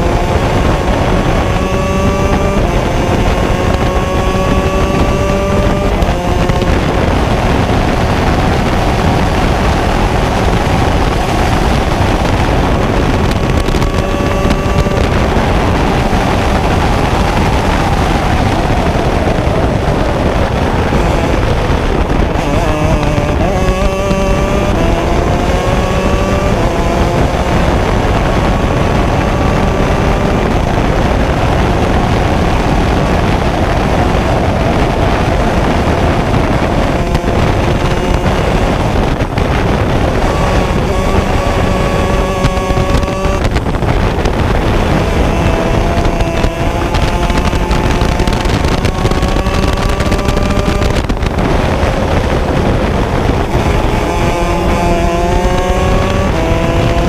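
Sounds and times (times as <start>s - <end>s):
kart engine revving through gears: 0.0s - 57.0s
wind noise: 0.0s - 57.0s.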